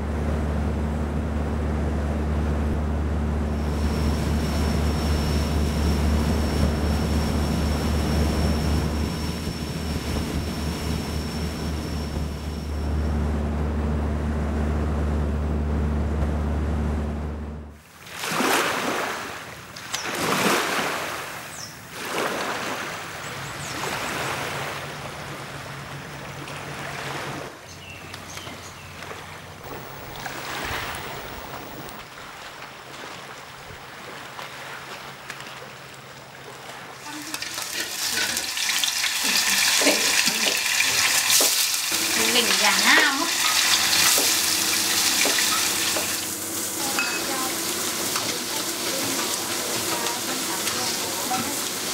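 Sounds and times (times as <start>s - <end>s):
low steady hum: 0.0s - 17.8s, 29.5s - 34.0s, 41.9s - 51.6s
small waves washing on shore: 17.8s - 27.6s, 28.9s - 51.9s
food sizzling in a hot pan: 37.2s - 51.9s.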